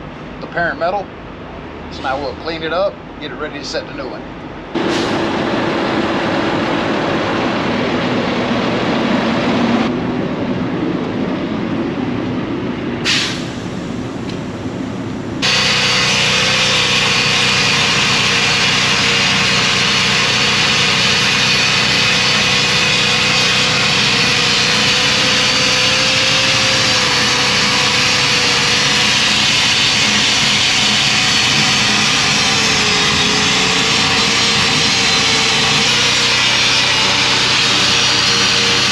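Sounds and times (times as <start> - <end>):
steady mechanical noise: 0.0 - 38.9
angle grinder grinding steel: 15.4 - 38.9.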